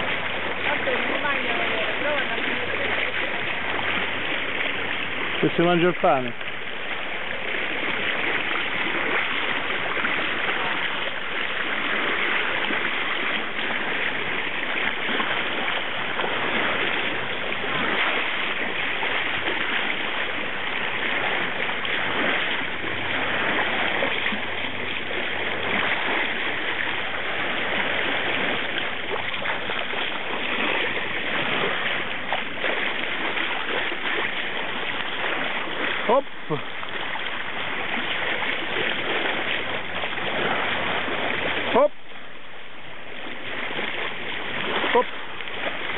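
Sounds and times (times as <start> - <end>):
water splashing along boat hull: 0.0 - 45.9.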